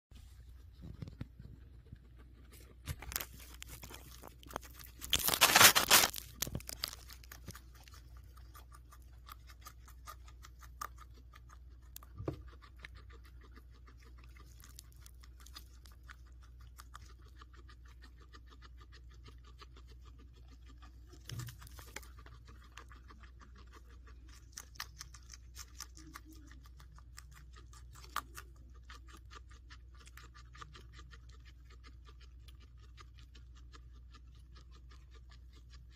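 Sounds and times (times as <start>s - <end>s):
guinea pig chewing and crunching: 0.1s - 35.9s.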